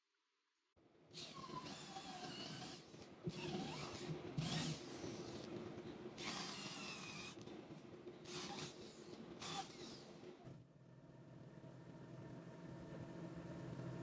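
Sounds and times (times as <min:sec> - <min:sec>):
electric drill boring into wood: 0:01.2 - 0:05.5, 0:06.2 - 0:07.4, 0:08.3 - 0:10.1.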